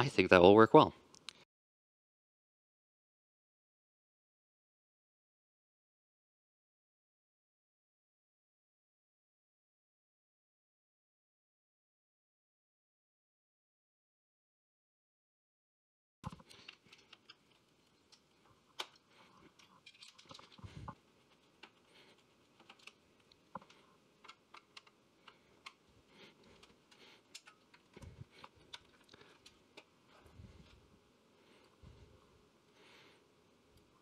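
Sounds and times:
metal and plastic parts handled: 0:16.2 - 0:30.8.

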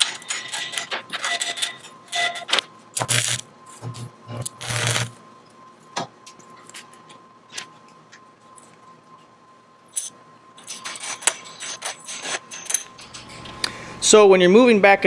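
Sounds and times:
stick welder crackling: 0:03.0 - 0:03.4, 0:04.5 - 0:05.1.

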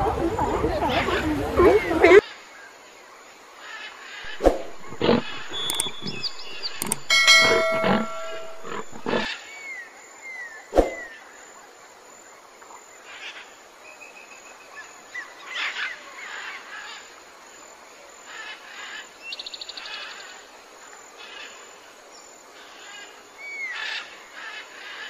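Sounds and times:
faint high chirps: 0:04.3 - 0:09.2
sharp click: 0:04.3 - 0:09.2
lioness growling: 0:04.6 - 0:07.0.

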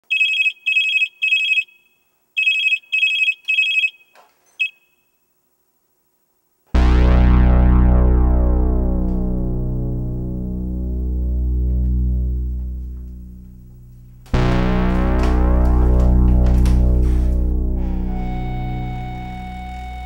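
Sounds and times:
phone electronic beeps: 0:00.1 - 0:01.8, 0:02.4 - 0:04.9
deep sustained music chord: 0:06.8 - 0:20.0.

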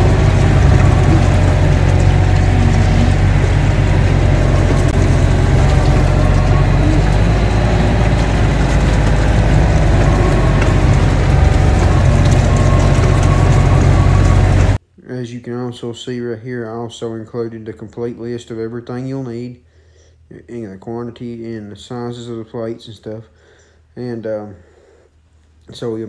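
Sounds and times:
excavator diesel engine running: 0:00.0 - 0:14.8.

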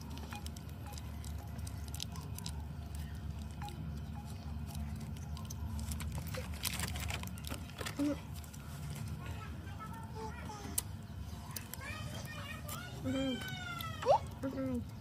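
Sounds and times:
plastic sachet crinkling: 0:04.6 - 0:09.2.

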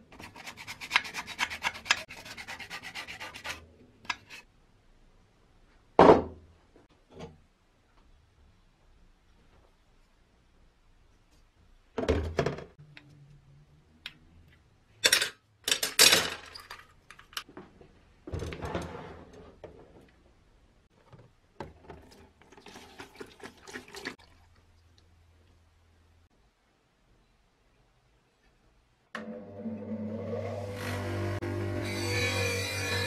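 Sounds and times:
metal parts clattering in plastic tub: 0:15.1 - 0:17.4
liquid pouring: 0:21.9 - 0:25.0.

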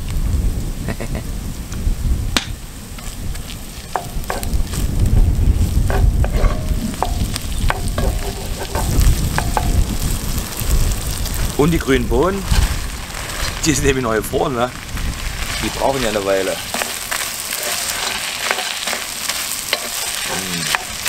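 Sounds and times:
wind rumbling on microphone: 0:00.0 - 0:21.0
oil sizzling: 0:02.4 - 0:21.0
wooden spoon scraping a pot: 0:03.0 - 0:05.0, 0:05.6 - 0:10.0, 0:12.4 - 0:13.8, 0:15.3 - 0:21.0.

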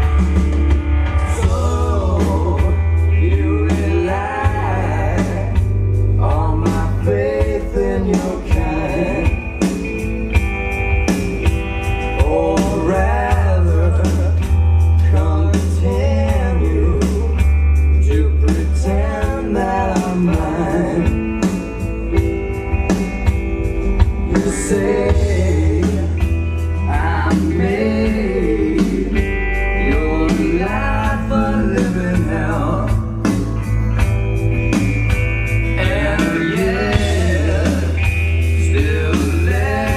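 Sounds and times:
blues-rock song over loudspeakers: 0:00.0 - 0:39.9.

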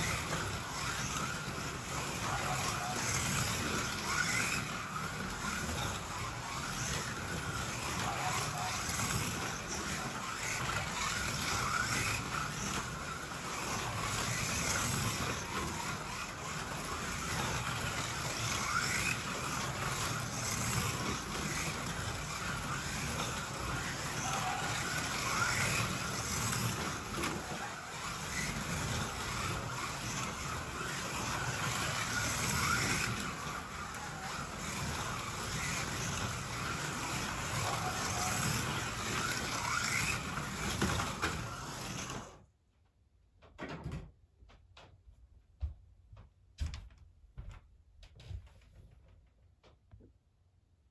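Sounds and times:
slot car motors whining: 0:00.0 - 0:42.4.

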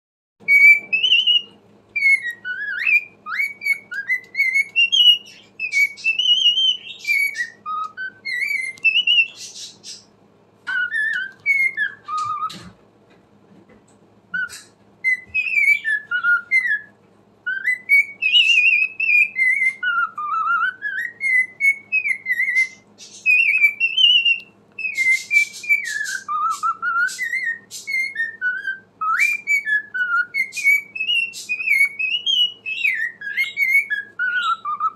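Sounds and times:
cockatiel whistling and warbling: 0:00.4 - 0:12.8, 0:14.3 - 0:34.9
cockatiel scratchy chattering: 0:00.5 - 0:10.1, 0:17.5 - 0:34.9.

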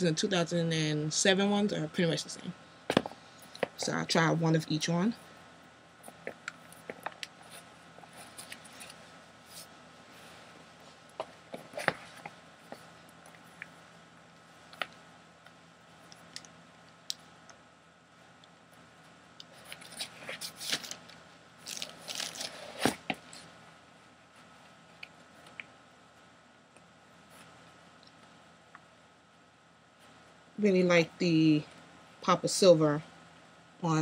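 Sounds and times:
shoe handling rustles: 0:06.1 - 0:13.4, 0:21.6 - 0:23.4.

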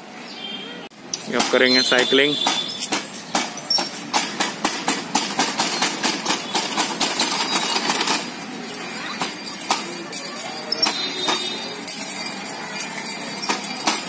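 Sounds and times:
cross-trainer metal clanking: 0:01.0 - 0:14.0.

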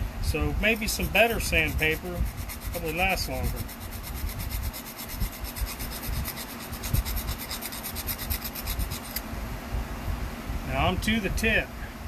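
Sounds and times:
knife scraping on sandpaper: 0:00.3 - 0:09.2.

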